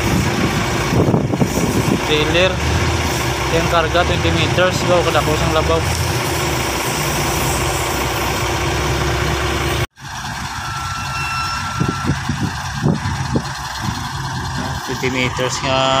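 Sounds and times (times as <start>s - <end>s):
diesel engine idling: 0.0s - 16.0s
thin high tone: 10.4s - 12.7s.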